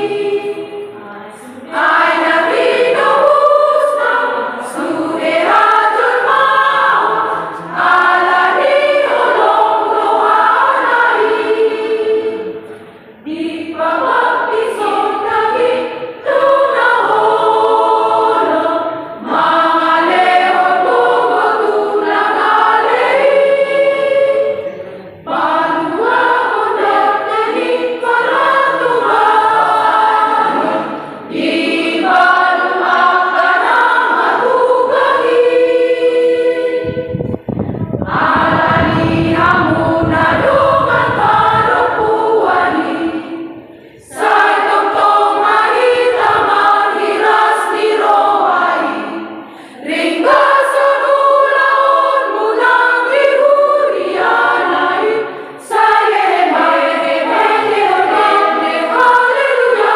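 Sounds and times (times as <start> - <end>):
women's choir singing a hymn: 0.0 - 59.9
low rumble: 37.0 - 42.2.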